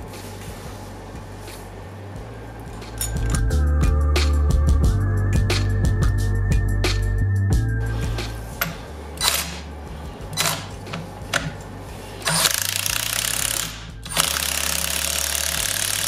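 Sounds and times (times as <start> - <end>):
impact wrench rattling: 2.9 - 3.5, 8.6 - 9.7, 10.3 - 16.0
tool and parts knocking: 10.3 - 11.6.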